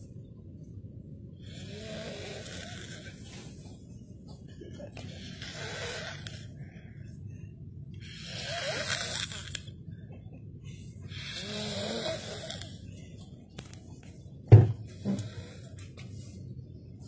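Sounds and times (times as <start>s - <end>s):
man snoring: 1.4s - 3.2s, 5.1s - 6.4s, 8.0s - 9.6s, 11.1s - 12.7s.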